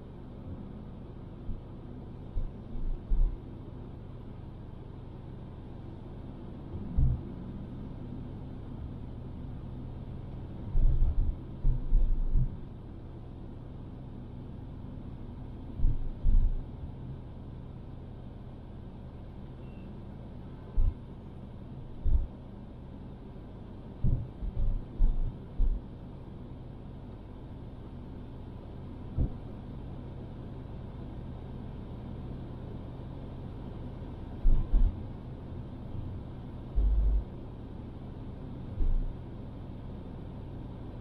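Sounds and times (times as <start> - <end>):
car engine and tyres rumbling: 0.0 - 41.0
short low thumps: 6.9 - 7.3, 22.0 - 22.3, 24.0 - 25.8, 34.4 - 35.0, 36.8 - 37.3, 38.8 - 39.1.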